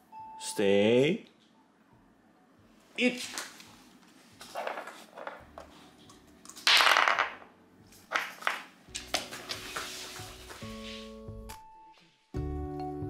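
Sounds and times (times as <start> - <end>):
faint music: 0.0 - 13.0
ice dropping on wooden floor: 6.6 - 7.4.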